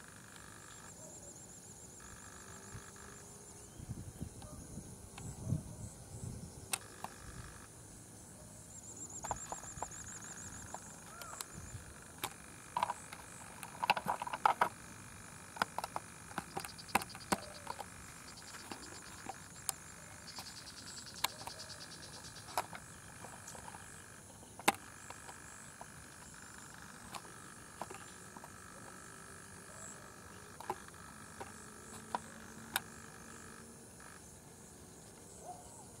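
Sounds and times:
high-pitched insect drone: 0:00.0 - 0:36.0
insect trills: 0:00.0 - 0:36.0
sharp clicks and knocks: 0:09.1 - 0:11.6, 0:12.2 - 0:14.8, 0:15.5 - 0:29.0, 0:30.3 - 0:33.0.

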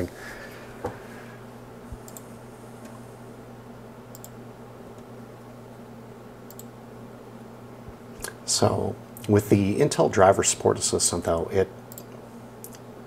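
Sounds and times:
steady low hum: 0:00.0 - 0:13.0
computer mouse clicks: 0:02.1 - 0:02.3, 0:04.1 - 0:04.4, 0:06.5 - 0:06.7, 0:11.9 - 0:12.8.

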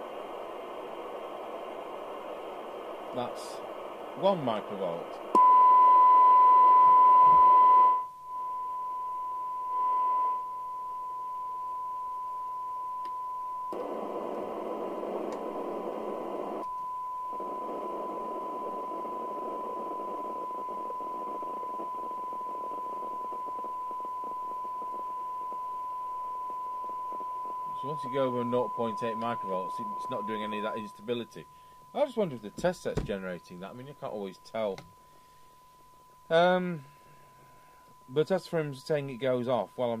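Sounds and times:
radio hiss: 0:00.0 - 0:05.4, 0:13.7 - 0:16.6, 0:17.2 - 0:35.5, 0:36.2 - 0:40.0
radio test tone: 0:00.0 - 0:40.0.

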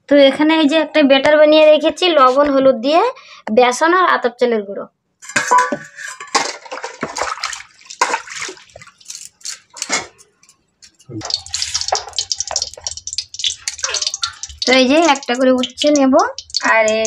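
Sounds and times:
steel bowls and utensils clinking: 0:05.2 - 0:17.0
oil crackling in a wok: 0:06.3 - 0:17.0.

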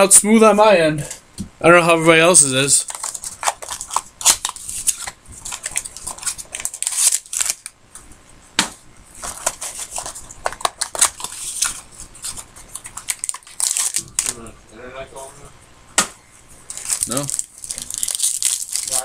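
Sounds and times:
card wrapper rustling: 0:02.8 - 0:07.7, 0:09.2 - 0:14.4, 0:16.7 - 0:19.0.

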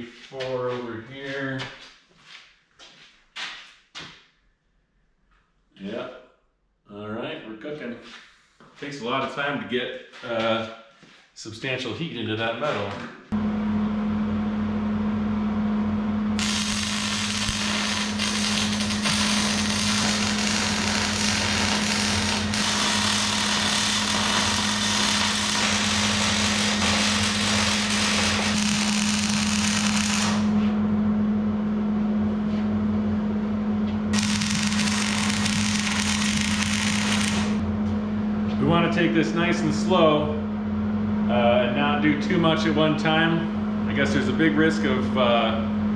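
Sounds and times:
steady low hum: 0:11.4 - 0:45.9
welding arc crackling: 0:16.4 - 0:30.6, 0:34.2 - 0:37.6.

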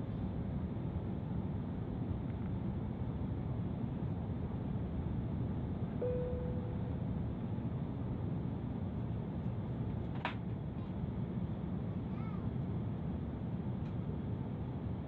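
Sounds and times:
airliner cabin roar: 0:00.0 - 0:15.0
faint high chirp: 0:06.0 - 0:06.8.

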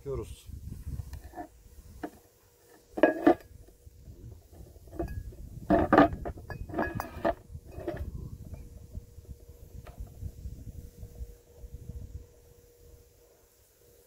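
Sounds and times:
metal parts clinking: 0:04.7 - 0:08.1.

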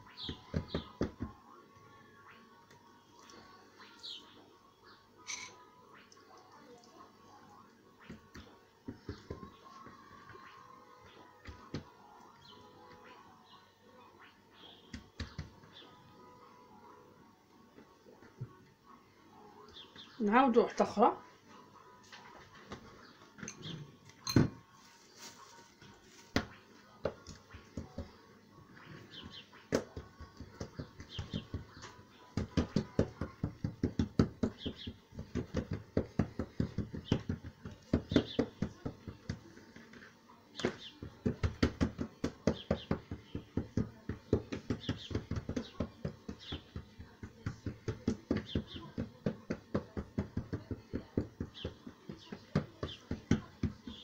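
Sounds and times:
hands patting dough: 0:08.0 - 0:12.0, 0:14.9 - 0:15.7, 0:29.1 - 0:54.0.

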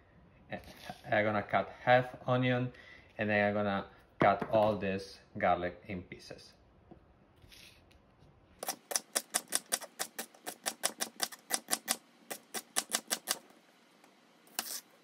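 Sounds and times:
knife chopping on wooden board: 0:08.6 - 0:13.4.

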